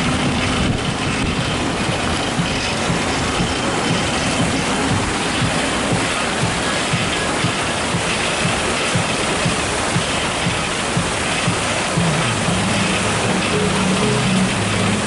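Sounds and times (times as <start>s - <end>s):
music with low thumping beat: 0.0s - 15.0s
rushing hiss: 0.0s - 15.0s.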